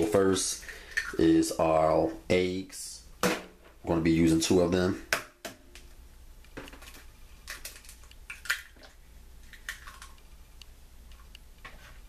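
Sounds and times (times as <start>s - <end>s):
egg shell cracking: 6.5s - 10.4s.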